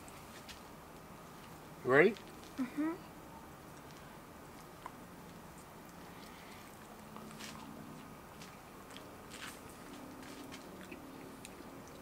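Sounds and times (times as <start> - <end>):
people chewing crunchy food: 3.6 - 12.0.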